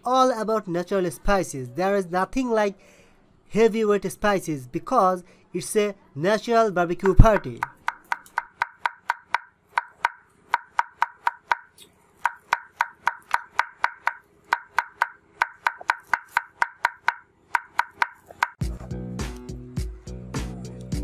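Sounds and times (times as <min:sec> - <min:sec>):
knife chopping herbs: 0:07.0 - 0:18.6
music: 0:18.6 - 0:21.0.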